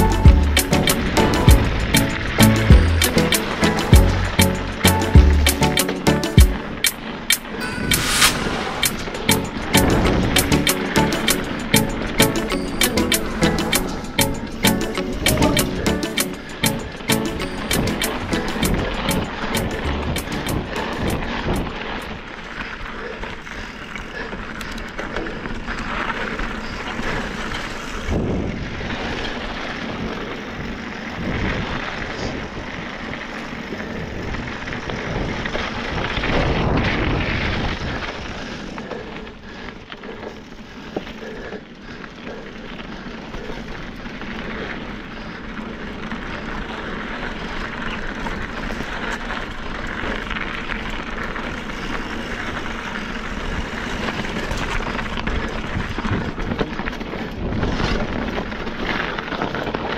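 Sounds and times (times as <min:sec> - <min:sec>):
bike rattling over ground: 0:00.0 - 0:07.9, 0:08.5 - 0:59.9
bike tyres rolling: 0:00.0 - 0:59.9
wind rushing on microphone: 0:07.6 - 0:10.8, 0:27.2 - 0:39.0, 0:52.6 - 0:59.9.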